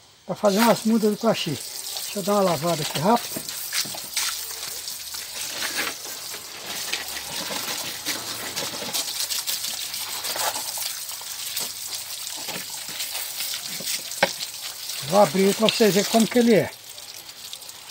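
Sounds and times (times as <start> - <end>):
hose water splashing: 0.3 - 17.9.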